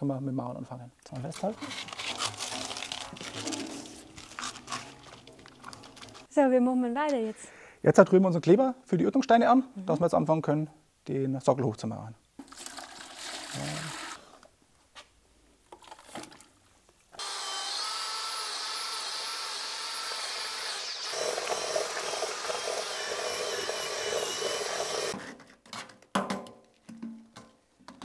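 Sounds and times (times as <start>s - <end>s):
water pouring into a bucket: 12.4s - 14.2s
power drill mixing adhesive: 17.2s - 25.2s.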